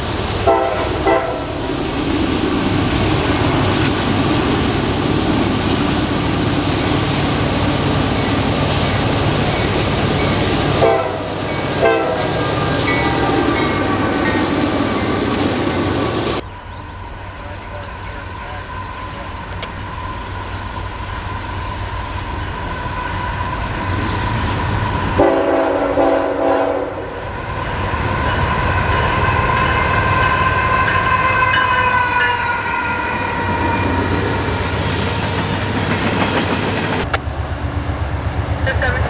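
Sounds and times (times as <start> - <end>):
locomotive engines and wheels rumbling: 0.0 - 39.0
locomotive air horns: 0.4 - 1.6, 10.7 - 14.2, 25.2 - 27.3.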